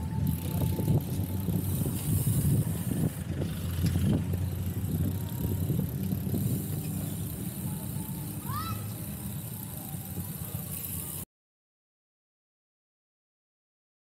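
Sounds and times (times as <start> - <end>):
wind on microphone: 0.0 - 7.9
tyres rolling on concrete: 0.0 - 11.2.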